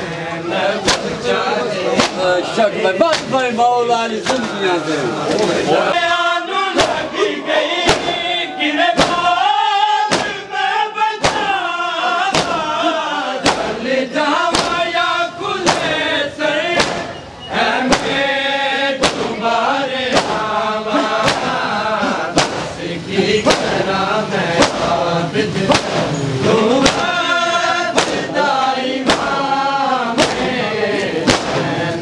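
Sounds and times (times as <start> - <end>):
mourners chanting in unison: 0.0 - 3.3, 4.3 - 32.0
hands striking chests: 7.8 - 8.2, 9.0 - 9.3, 10.1 - 10.4, 12.3 - 12.7, 13.4 - 13.8, 14.5 - 14.8, 15.6 - 16.0, 16.8 - 17.1, 17.9 - 18.2, 19.0 - 19.4, 20.1 - 20.4, 21.2 - 21.6, 22.3 - 22.8, 24.6 - 25.0, 25.7 - 26.1, 26.8 - 27.1, 27.9 - 28.3, 29.0 - 29.4, 30.2 - 30.5, 31.3 - 31.6.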